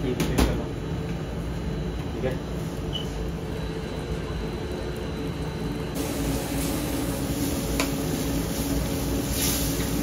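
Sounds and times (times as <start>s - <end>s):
kitchen machinery drone: 0.0s - 10.0s
food sizzling in a wok: 6.0s - 10.0s.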